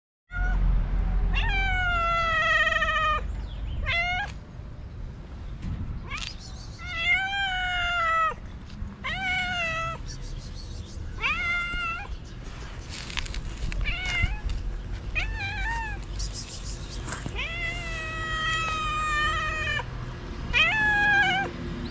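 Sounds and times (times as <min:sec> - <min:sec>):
cat meowing: 0:01.3 - 0:03.2, 0:03.8 - 0:04.4, 0:06.1 - 0:08.4, 0:09.0 - 0:10.1, 0:11.2 - 0:12.1, 0:13.8 - 0:14.6, 0:15.2 - 0:16.1, 0:17.3 - 0:19.9, 0:20.5 - 0:21.5.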